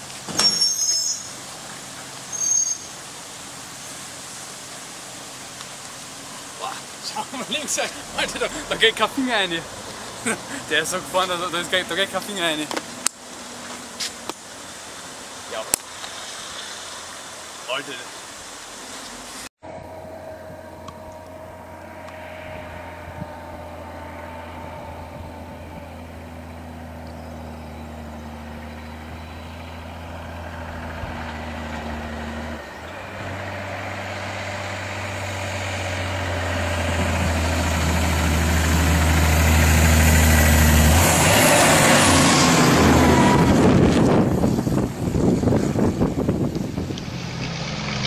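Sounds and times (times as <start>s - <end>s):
tyre and road noise: 0.0s - 48.0s
truck diesel engine running: 6.2s - 13.9s, 19.6s - 48.0s.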